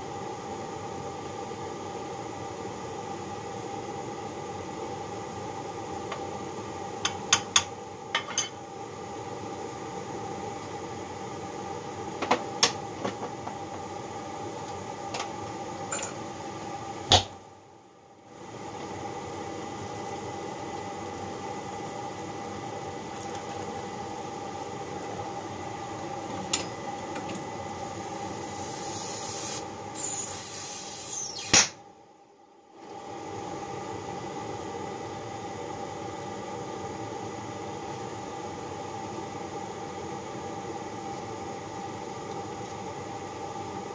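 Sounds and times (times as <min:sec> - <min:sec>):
steady hum: 0:05.4 - 0:33.6
gas torch flame hissing: 0:27.7 - 0:31.7.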